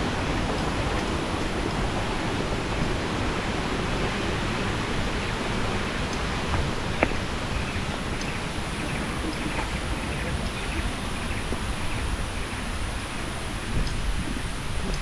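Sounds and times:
flowing water rushing: 0.0s - 15.0s.

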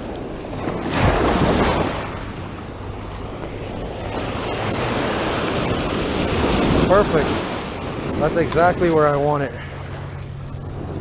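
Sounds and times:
ocean surf washing: 0.0s - 11.0s
wind buffeting microphone: 0.0s - 11.0s.

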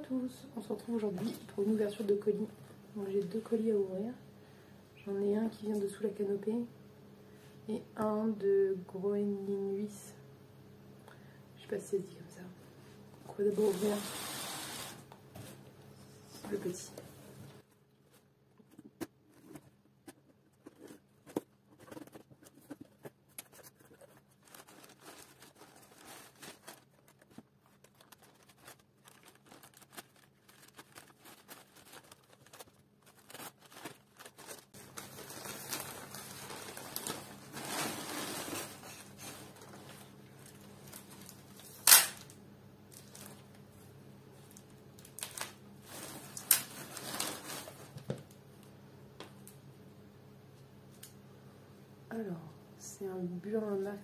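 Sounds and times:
paper crumpling and rustling: 17.6s - 42.2s, 42.9s - 43.5s, 44.5s - 48.0s.

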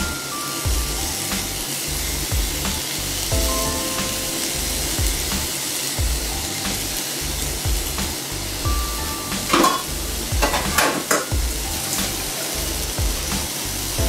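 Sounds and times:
background music with drum beats: 0.0s - 14.0s
food frying in a pan: 0.0s - 14.0s.

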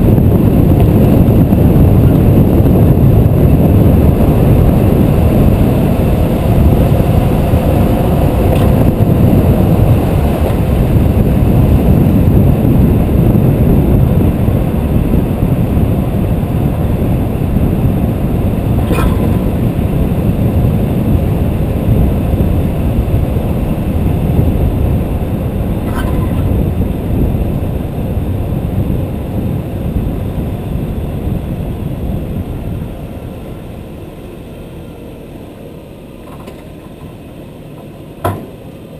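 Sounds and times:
car road and wind rumble: 0.0s - 38.9s
short knocks: 37.8s - 38.6s.

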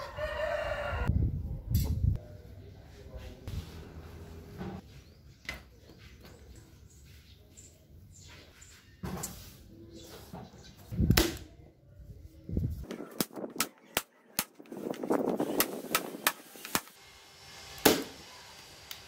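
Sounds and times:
nail gun shots: 17.8s - 18.2s.

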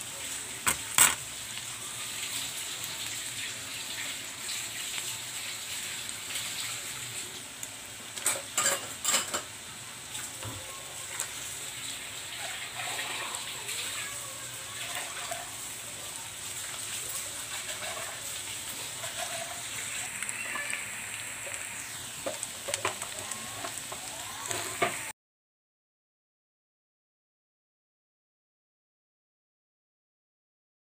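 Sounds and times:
food sizzling in a wok: 0.0s - 25.2s
utensils clanking against pan: 0.6s - 1.3s, 8.2s - 9.6s, 17.1s - 20.2s, 21.9s - 25.1s.

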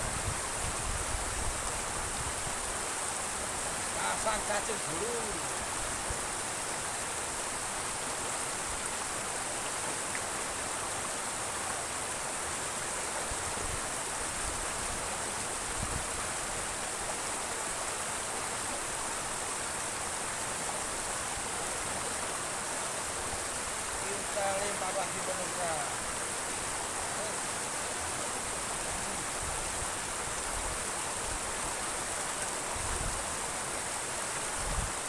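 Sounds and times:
water rushing and splashing: 0.0s - 35.0s.

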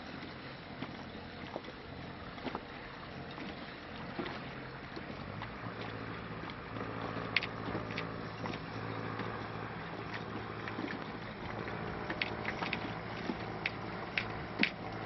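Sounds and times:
boat engine humming: 0.0s - 15.0s
water noise: 0.0s - 15.0s.

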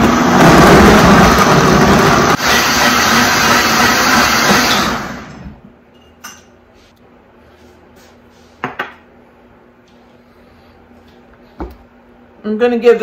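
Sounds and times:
blender running at high speed: 0.0s - 5.4s.

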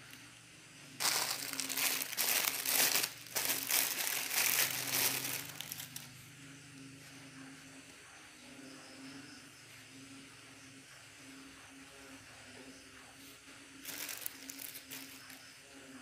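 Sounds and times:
plastic wrapping crinkling: 1.0s - 6.1s, 13.8s - 15.4s.

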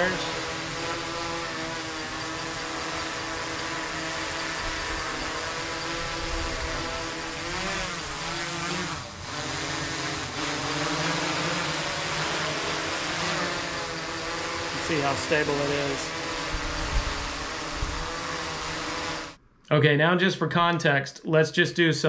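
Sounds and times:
drone propellers humming: 0.0s - 19.4s.

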